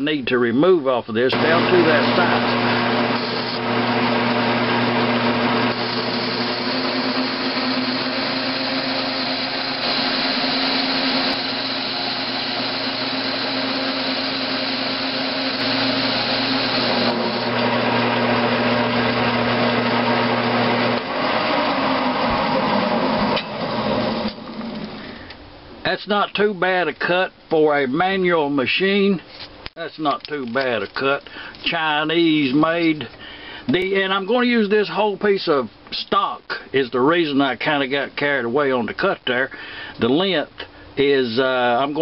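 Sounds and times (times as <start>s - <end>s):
cutting tool hissing on metal: 1.4s - 3.7s, 5.5s - 17.7s
lathe motor and gear hum: 1.4s - 25.0s.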